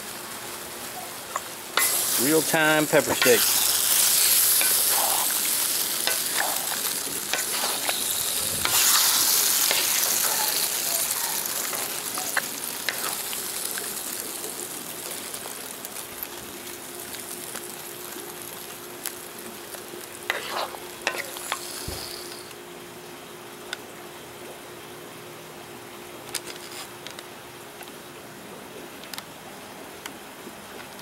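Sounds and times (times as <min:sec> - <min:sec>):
food sizzling in a wok: 0:00.0 - 0:22.6
wooden spoon scraping pan: 0:01.8 - 0:13.2, 0:20.3 - 0:21.4.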